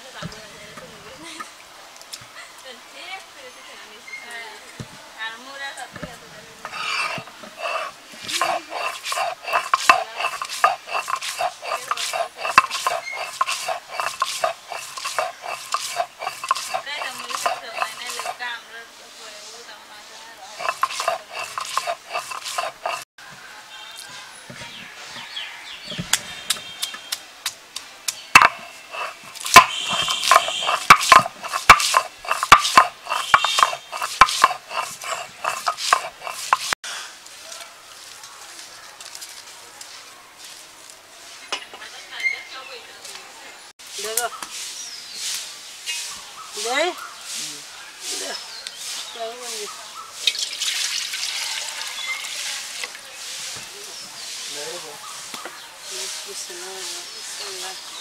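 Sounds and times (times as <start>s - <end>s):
stone roller scraping on slab: 6.0s - 18.6s, 20.4s - 23.1s, 28.3s - 36.8s.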